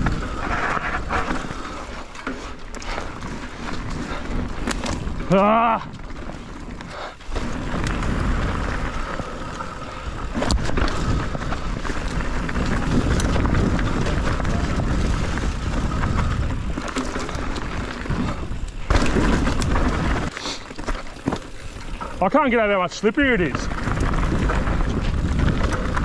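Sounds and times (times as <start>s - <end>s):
wind rumble on microphone: 0.0s - 1.7s, 7.5s - 20.3s, 23.5s - 26.0s
bike rattling: 0.0s - 26.0s
tyres rolling over dirt and rock: 0.0s - 26.0s.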